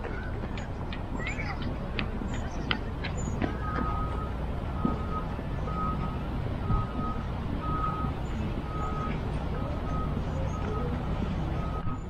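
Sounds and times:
low rumble of engine and traffic: 0.0 - 12.0
reversing alarm beeping: 3.2 - 12.0.

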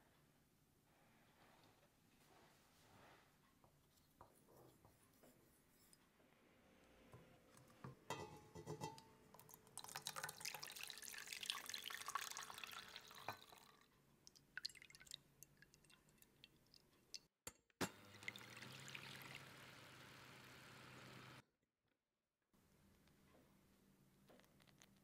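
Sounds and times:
egg whites pouring into bowl: 9.4 - 13.8, 18.2 - 20.0
water pouring into steel bowl: 9.4 - 13.8, 14.6 - 16.8, 18.2 - 19.7
electric hand mixer humming: 18.0 - 21.4.

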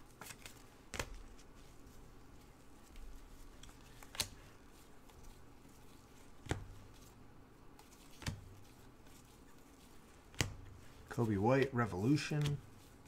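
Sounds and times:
cards rustling: 0.0 - 13.0
cards flipping clicks: 0.1 - 1.4, 2.9 - 5.4, 6.3 - 7.0, 7.8 - 9.4, 10.3 - 10.9, 11.6 - 12.7.

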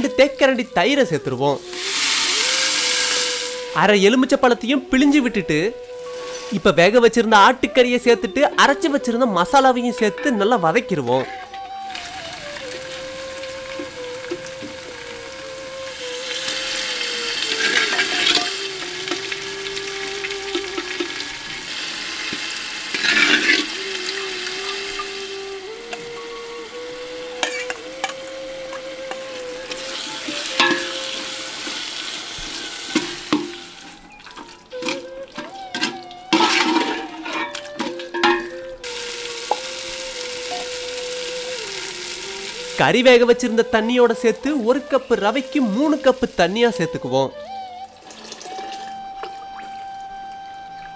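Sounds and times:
meat frying in hot oil: 1.6 - 3.7, 11.9 - 25.4, 29.3 - 34.2, 38.8 - 42.8, 48.0 - 48.8
ladle stirring and scraping: 16.2 - 19.9, 22.2 - 24.2, 27.4 - 28.2, 32.9 - 39.6.

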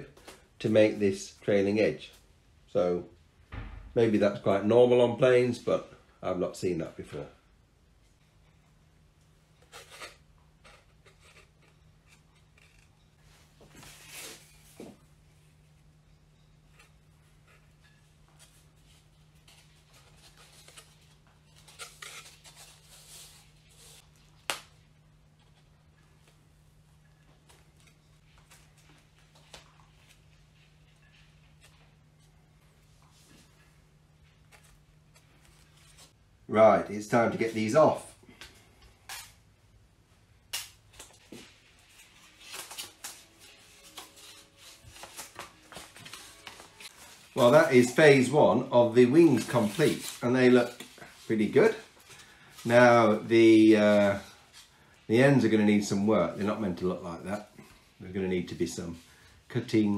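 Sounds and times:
wood strips rustling and scraping: 41.2 - 53.2.

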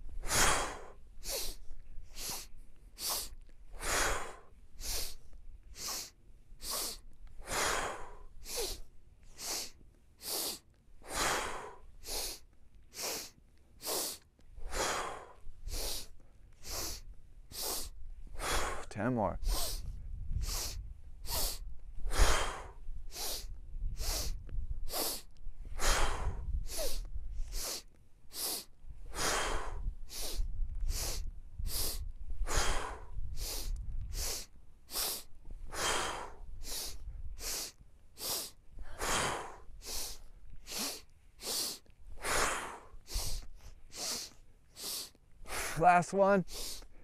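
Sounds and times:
sharp sniffs through nose: 2.2 - 5.2, 5.8 - 18.8, 19.4 - 45.7, 46.5 - 46.9
breath out through mouth: 13.0 - 45.8.

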